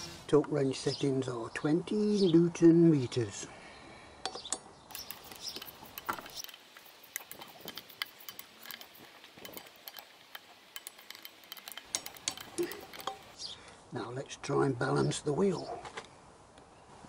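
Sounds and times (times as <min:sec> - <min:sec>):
torque wrench clicking: 0:04.9 - 0:13.4.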